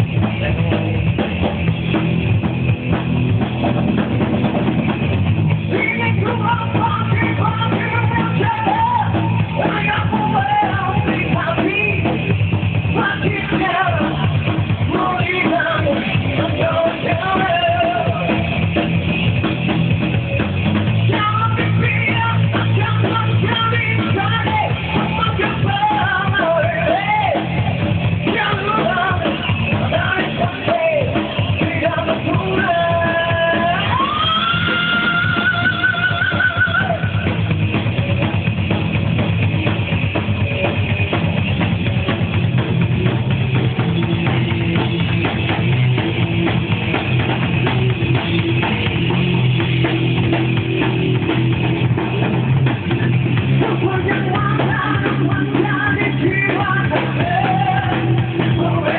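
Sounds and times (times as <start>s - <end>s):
live rock band playing: 0.0s - 58.9s
person singing: 5.7s - 12.3s, 12.9s - 18.6s, 21.0s - 37.4s, 53.5s - 58.9s.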